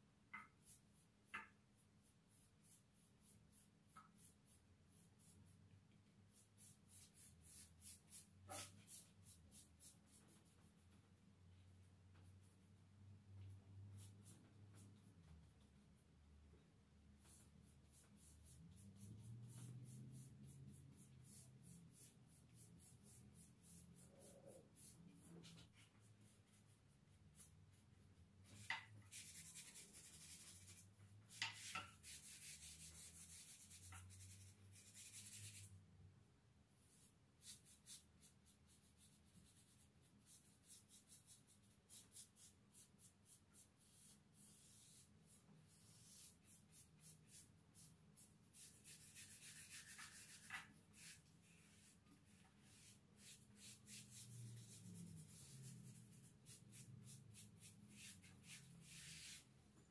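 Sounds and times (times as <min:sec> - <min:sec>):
paintbrush strokes on wood: 0:00.4 - 0:12.6, 0:17.2 - 0:35.7, 0:36.8 - 0:59.5.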